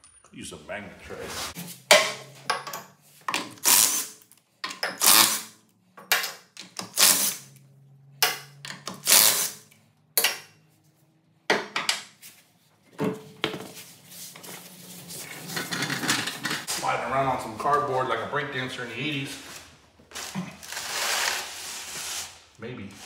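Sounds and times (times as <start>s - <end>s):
metal tools clattering and scraping: 1.5s - 5.4s, 15.2s - 16.7s.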